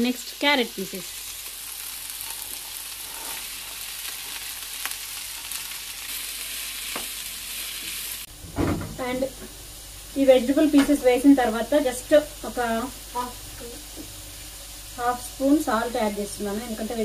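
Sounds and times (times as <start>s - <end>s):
vegetables sizzling in oil: 0.0s - 17.0s.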